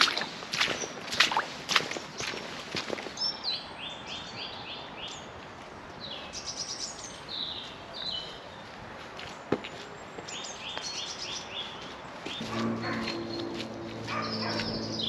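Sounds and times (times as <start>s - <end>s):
footsteps on muddy path: 0.0s - 3.2s, 11.6s - 15.0s
songbirds singing: 3.1s - 5.4s, 10.1s - 15.0s.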